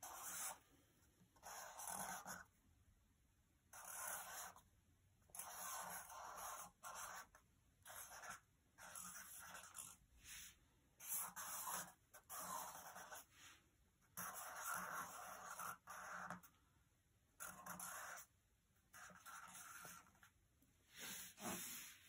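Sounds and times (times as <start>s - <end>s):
markers scratching on paper: 0.0s - 0.6s, 1.4s - 2.5s, 3.7s - 4.6s, 5.3s - 10.0s, 11.0s - 13.3s, 14.1s - 16.6s, 17.4s - 18.3s, 18.9s - 20.3s, 21.0s - 22.0s.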